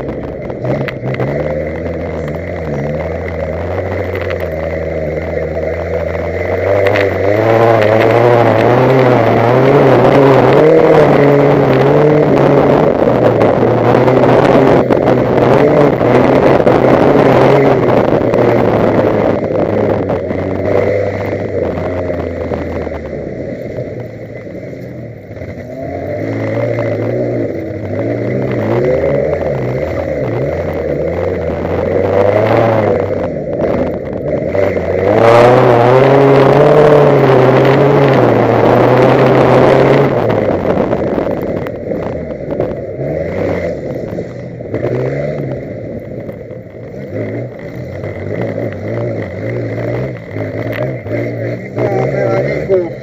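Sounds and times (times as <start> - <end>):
race car engine revving: 0.0 - 53.0.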